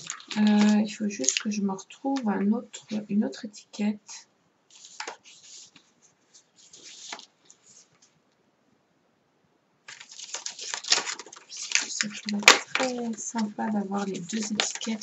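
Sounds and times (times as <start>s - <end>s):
paper and card rustling: 0.0s - 3.1s, 4.7s - 8.1s, 9.9s - 15.0s.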